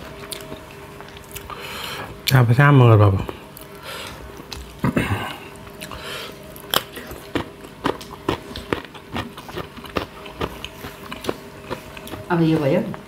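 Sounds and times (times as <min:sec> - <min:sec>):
wet chewing: 0:00.1 - 0:02.4, 0:05.6 - 0:13.0.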